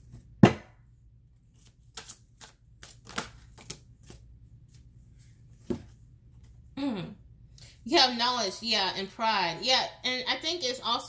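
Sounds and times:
cards snapping and tapping: 0:01.9 - 0:04.2.

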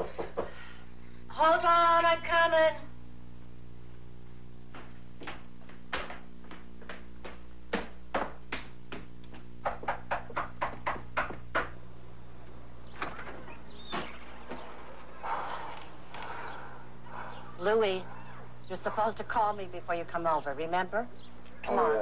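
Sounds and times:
steady background hum: 0:00.0 - 0:22.0
footsteps on a hard floor: 0:04.6 - 0:09.9
footsteps down a staircase: 0:04.6 - 0:11.5.

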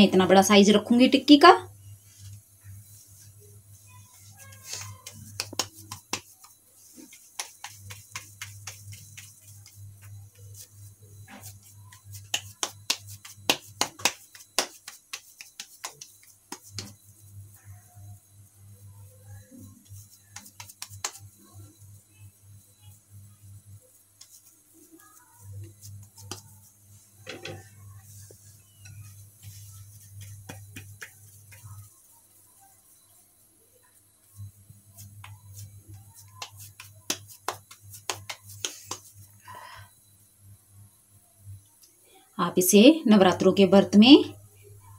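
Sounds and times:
wet palms patting dough: 0:01.8 - 0:17.8, 0:19.3 - 0:33.1, 0:34.2 - 0:39.8.

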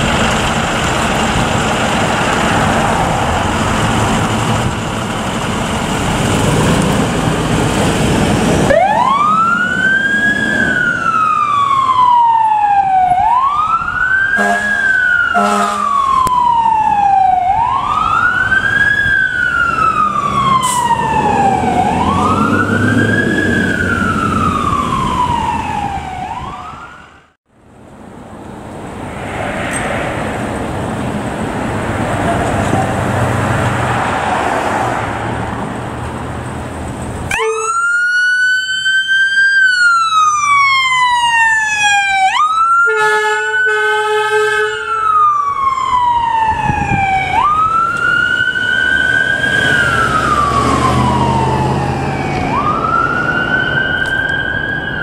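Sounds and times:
diesel engine running: 0:00.0 - 0:09.8
siren wailing: 0:08.7 - 0:27.3, 0:37.3 - 0:55.0
horn blasts: 0:14.4 - 0:16.0, 0:42.9 - 0:44.9.

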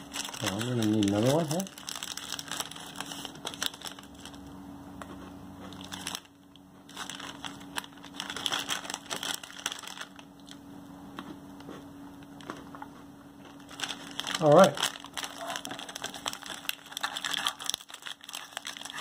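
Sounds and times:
snack bag crinkling: 0:00.0 - 0:04.5, 0:05.7 - 0:10.6, 0:13.5 - 0:19.0.

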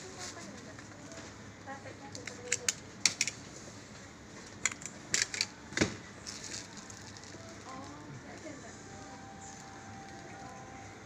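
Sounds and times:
plastic packaging crackling: 0:06.2 - 0:08.4.

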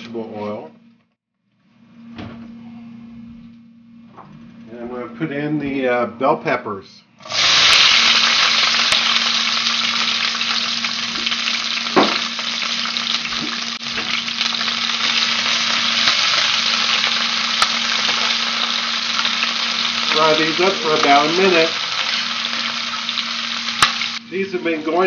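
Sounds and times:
peppers sizzling in oil: 0:07.2 - 0:24.9.

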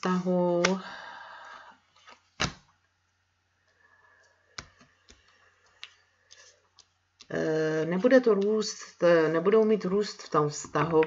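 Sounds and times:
cards rustling: 0:01.9 - 0:02.7.

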